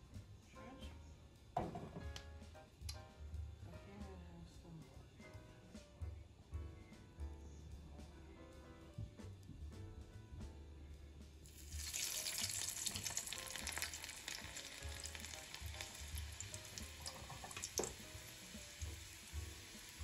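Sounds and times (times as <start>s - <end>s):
background music with bass pulse: 0.0s - 11.8s, 13.2s - 20.0s
food sizzling in hot oil: 11.4s - 20.0s.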